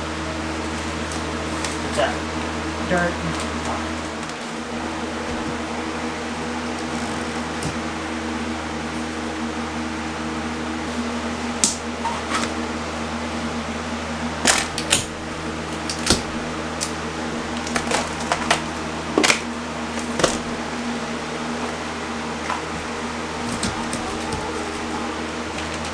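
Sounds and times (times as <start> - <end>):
box fan humming: 0.0 - 25.9
wall panel cracking and snapping: 14.4 - 20.7, 22.8 - 25.9.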